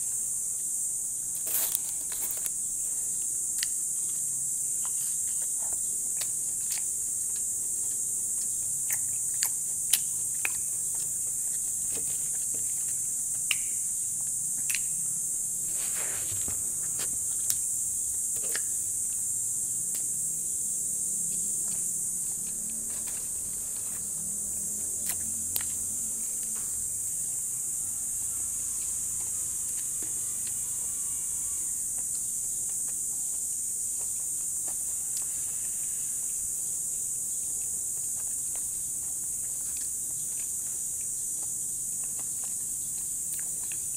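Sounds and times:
person chewing: 1.4s - 2.6s, 3.2s - 15.0s, 37.0s - 43.9s
sharp mouth clicks and smacks: 8.4s - 11.7s, 13.3s - 15.0s, 37.9s - 43.9s.

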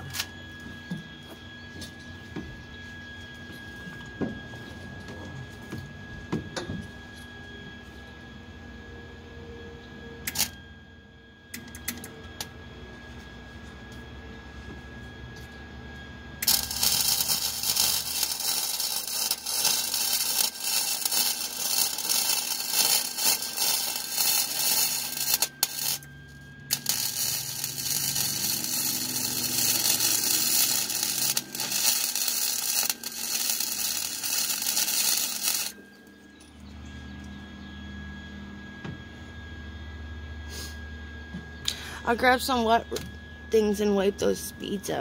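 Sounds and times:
welding arc crackling: 16.4s - 26.1s, 26.7s - 35.8s.

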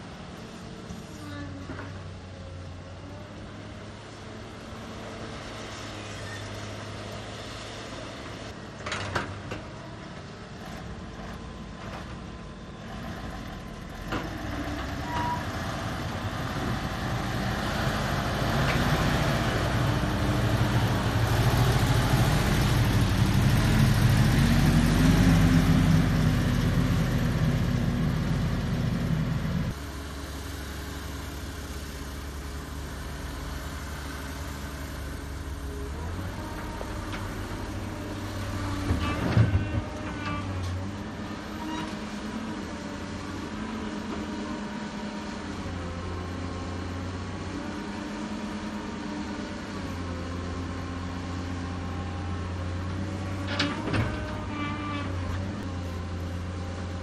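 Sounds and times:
dump truck diesel engine passing: 0.0s - 57.0s
steady engine running: 15.9s - 38.9s.

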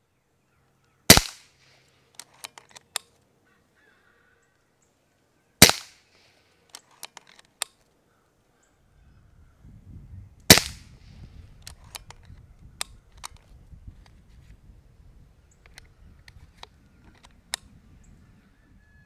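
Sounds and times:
air rifle shots: 1.1s - 1.8s, 5.6s - 6.3s, 10.5s - 11.1s.

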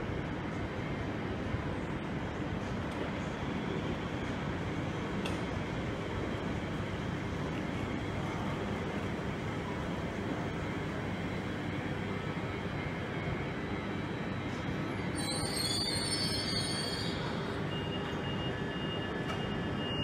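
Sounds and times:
electric train braking to a stop: 12.2s - 20.0s
high squeal from train: 12.9s - 20.0s.

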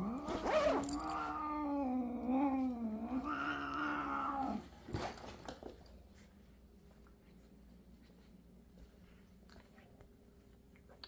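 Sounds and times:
cat yowling: 3.0s - 4.6s.

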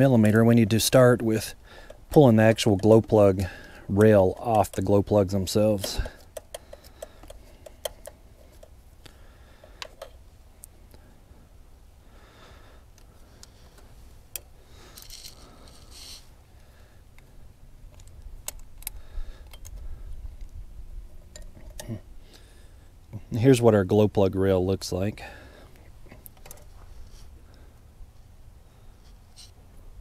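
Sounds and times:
wrench clicking on nuts: 5.5s - 8.8s.

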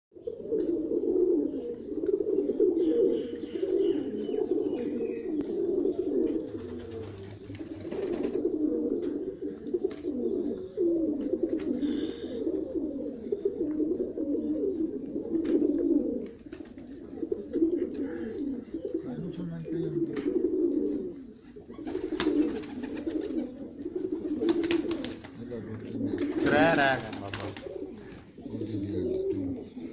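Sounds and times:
pigeons cooing: 0.2s - 29.9s.

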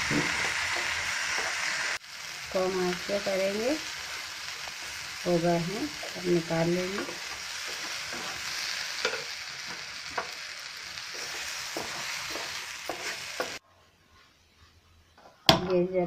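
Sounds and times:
potatoes sizzling in a pan: 0.0s - 13.6s
spatula scraping a pan: 5.8s - 15.4s.

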